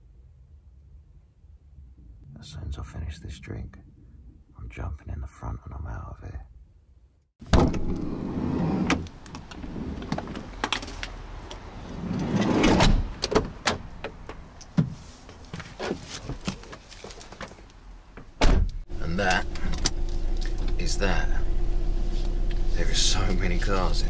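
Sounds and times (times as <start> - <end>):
van door movement: 7.4 - 20.8
fabric rustling: 15.0 - 17.7.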